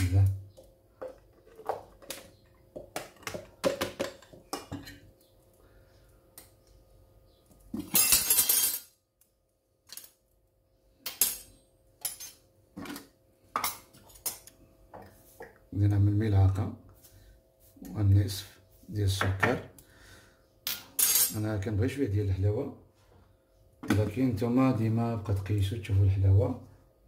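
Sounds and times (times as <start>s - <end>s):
plastic bowls clinking and knocking: 0.5s - 5.0s.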